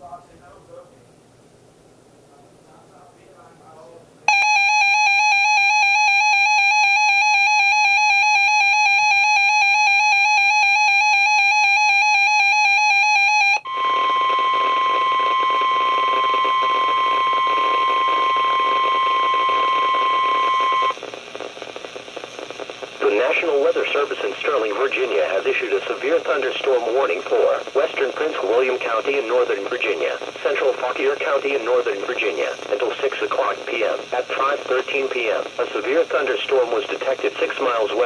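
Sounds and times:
faint radio hiss: 0:00.0 - 0:04.3, 0:13.6 - 0:38.0
warbling electronic alarm: 0:04.3 - 0:21.0
steady high alert tone: 0:13.4 - 0:20.9.

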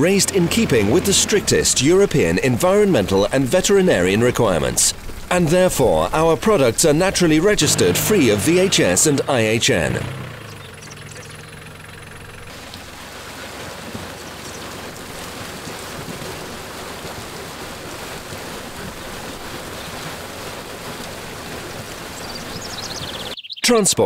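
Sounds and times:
tractor engine idling: 0:00.0 - 0:20.5
water and fish splashing down chute: 0:12.2 - 0:23.3.

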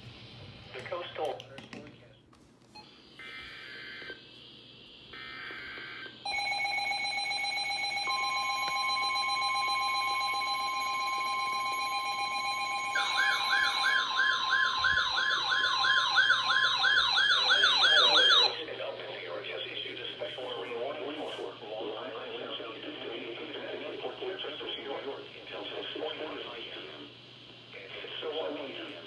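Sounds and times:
steady electronic alert tone: 0:06.3 - 0:14.3.

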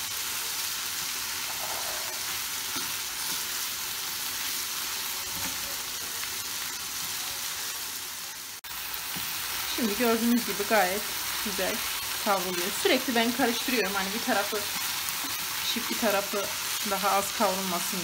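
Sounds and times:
meat sizzling in a frying pan: 0:00.0 - 0:18.0
wooden spoon scraping: 0:01.5 - 0:03.4.

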